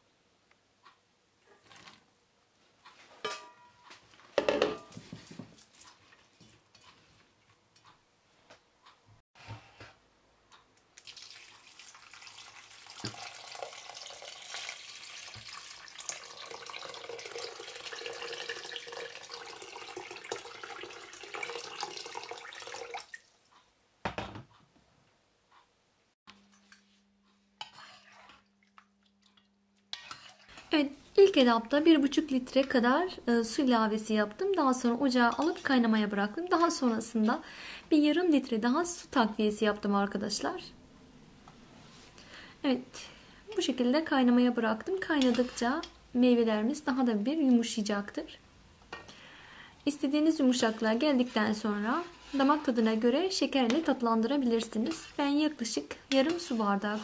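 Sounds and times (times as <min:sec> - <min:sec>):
water pouring into pot: 0:11.0 - 0:23.3.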